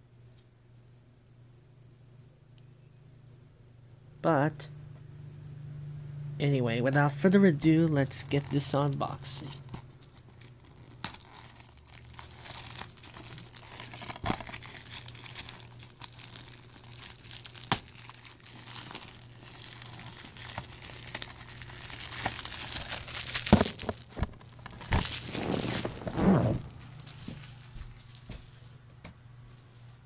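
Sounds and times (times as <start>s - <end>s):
plastic wrap crinkling: 8.2s - 28.4s.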